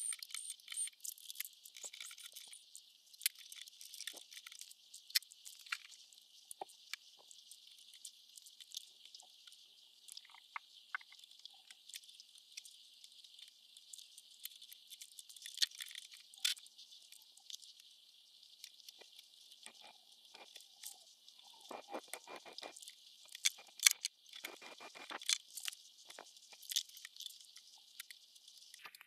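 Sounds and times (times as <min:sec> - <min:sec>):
small clicks and crackles: 0:00.0 - 0:29.0.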